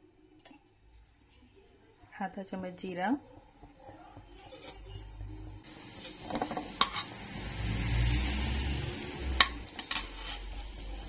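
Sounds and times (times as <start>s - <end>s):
seeds sizzling in hot oil: 2.5s - 11.0s.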